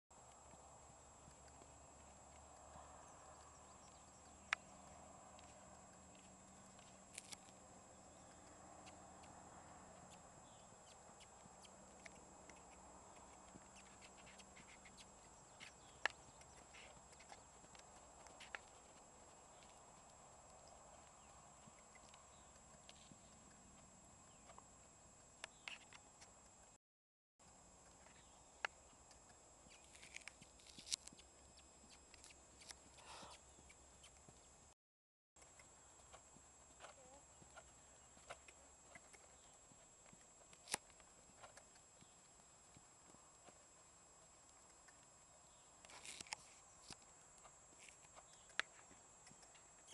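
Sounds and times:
horse hooves trotting on sand: 0.2s - 26.7s, 27.4s - 34.7s, 35.4s - 49.9s
sharp hoof clicks: 0.2s - 26.7s, 27.4s - 34.6s, 35.4s - 49.9s
horse hoofbeats on sand: 35.7s - 45.6s.

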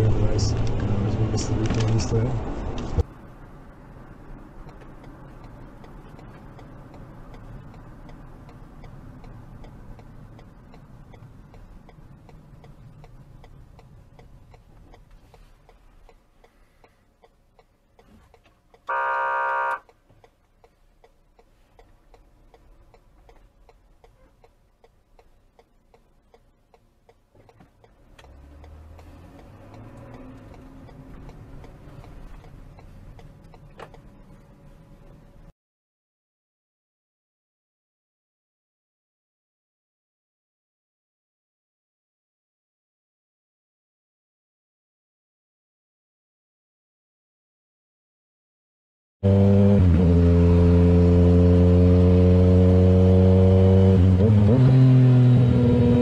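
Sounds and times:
car road and engine noise: 0.0s - 35.6s, 49.2s - 56.0s
faint regular ticking: 4.6s - 18.9s, 19.8s - 34.4s.

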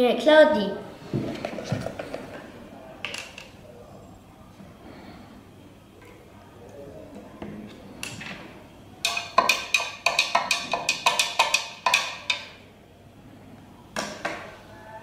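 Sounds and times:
stirring rod tapping jug: 9.0s - 12.6s.

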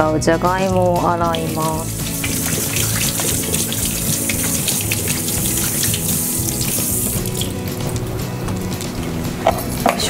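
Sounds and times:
tap running into sink: 0.6s - 8.6s.

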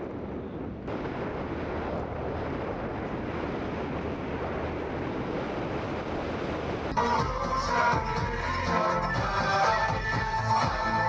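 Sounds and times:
wind on microphone: 0.0s - 7.0s
low rumble: 0.0s - 10.8s.

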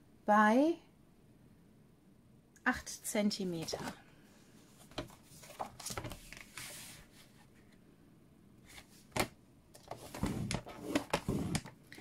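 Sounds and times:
cardstock rustling: 4.8s - 7.1s.

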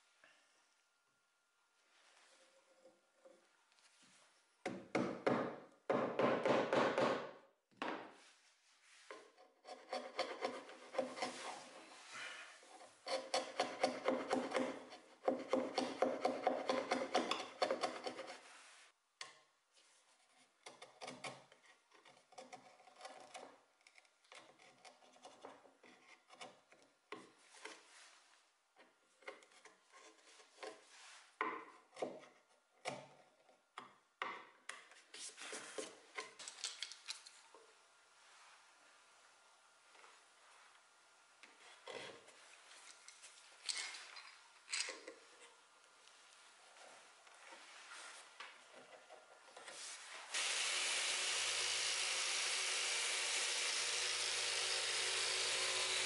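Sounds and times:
chisel rasping on wood: 9.6s - 11.6s, 13.0s - 18.4s, 51.0s - 56.0s.

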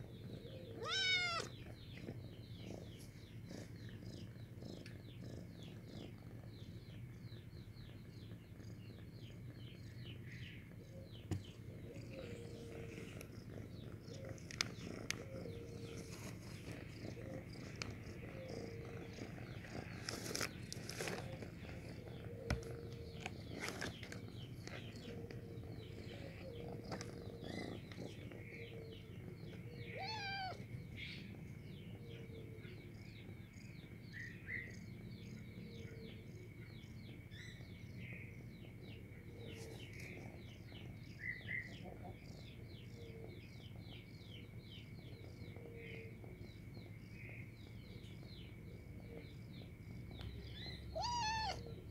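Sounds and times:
cat purring: 0.0s - 51.9s
cat meowing: 0.8s - 1.6s, 29.9s - 30.6s, 50.9s - 51.8s.

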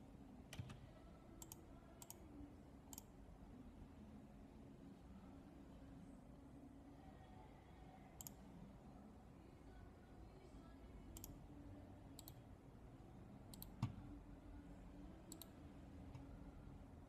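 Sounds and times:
computer mouse clicks: 0.5s - 0.8s, 1.4s - 2.3s, 2.9s - 3.1s, 8.2s - 8.4s, 11.2s - 11.4s, 12.2s - 12.4s, 13.5s - 14.0s, 15.3s - 16.3s.

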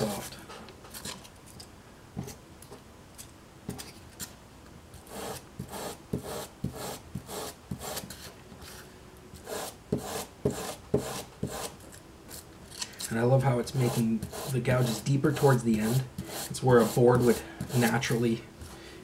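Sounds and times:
wire brush scraping foam: 0.0s - 0.4s, 13.1s - 18.2s.

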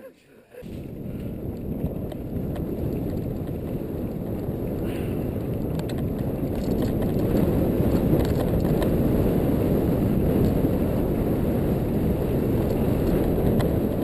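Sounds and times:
bike tyre noise on dirt: 0.6s - 14.0s
wind on microphone: 0.6s - 14.0s
bike clicks and rattles: 0.9s - 9.1s, 12.6s - 13.9s.

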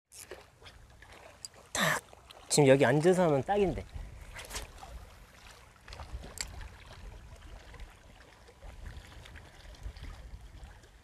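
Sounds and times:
water lapping against rocks: 0.2s - 11.0s
wind buffeting microphone: 3.5s - 5.2s, 5.9s - 11.0s.

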